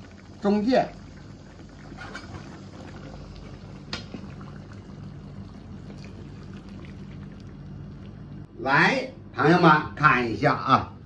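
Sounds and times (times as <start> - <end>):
sauce bubbling in a wok: 0.0 - 8.5
low hum: 1.1 - 9.4.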